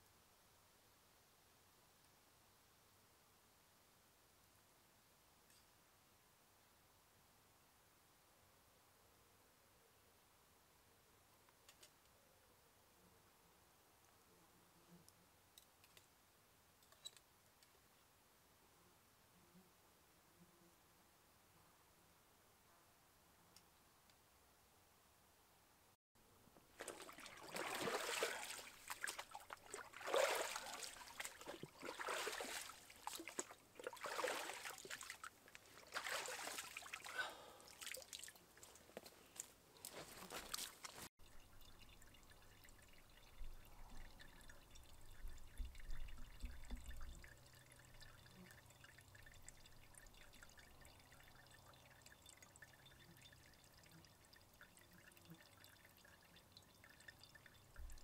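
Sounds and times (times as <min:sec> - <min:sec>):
faint steady background: 0:00.0 - 0:58.0
stream water splashing into pot: 0:26.7 - 0:38.4.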